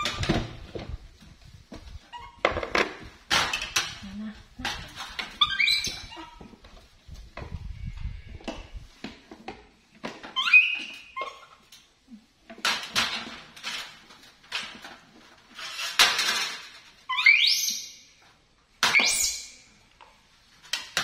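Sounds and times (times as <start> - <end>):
monkey squealing: 5.4 - 6.4, 10.4 - 11.6, 17.1 - 17.9.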